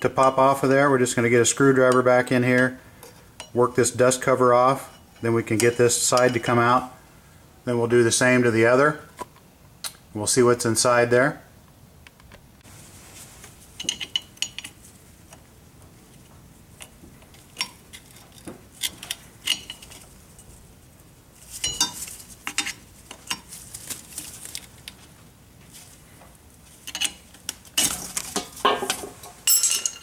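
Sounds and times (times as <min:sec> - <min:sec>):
screwdriver clicking and scraping metal: 0:16.8 - 0:20.1, 0:26.8 - 0:28.0.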